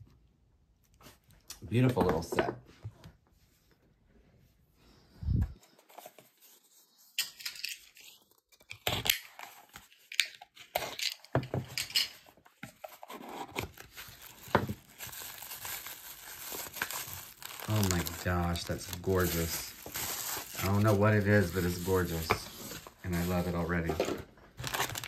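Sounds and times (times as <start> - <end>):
packing wrap crinkling and tearing: 13.1 - 23.9, 24.5 - 25.0.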